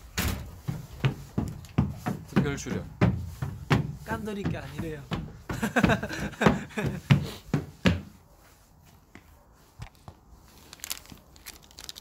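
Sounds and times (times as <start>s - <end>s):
person laughing: 5.5s - 7.1s.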